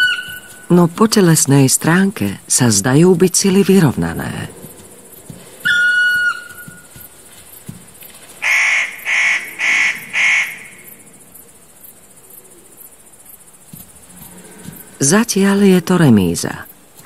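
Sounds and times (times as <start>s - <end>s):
bird harsh calls: 0.0s - 0.7s, 4.5s - 11.2s.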